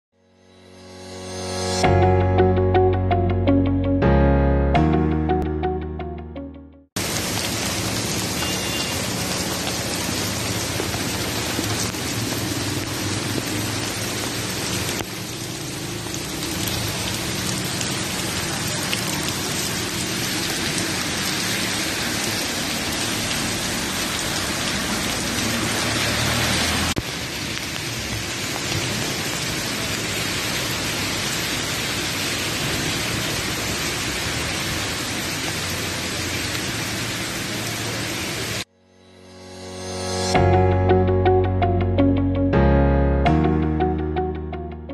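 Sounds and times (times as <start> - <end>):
hail and rain on pavement: 7.0 - 38.6.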